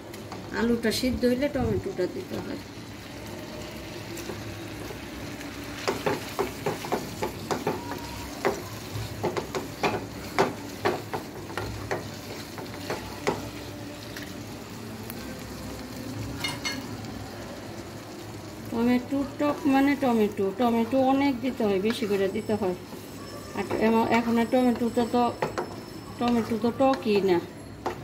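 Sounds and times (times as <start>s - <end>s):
food sizzling in a pan: 0.0s - 28.0s
wooden spatula tapping a pan: 5.8s - 13.5s, 24.7s - 28.0s.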